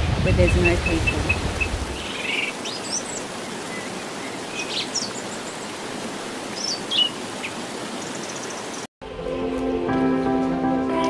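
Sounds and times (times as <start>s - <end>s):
running water rushing: 0.0s - 9.3s
birds chirping and whistling: 0.4s - 5.2s.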